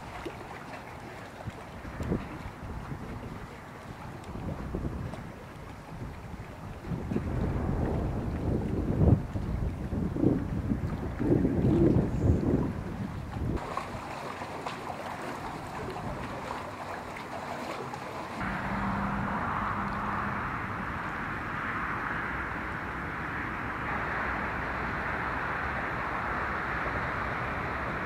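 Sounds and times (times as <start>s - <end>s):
wind buffeting microphone: 0.0s - 28.0s
low hum: 18.4s - 28.0s.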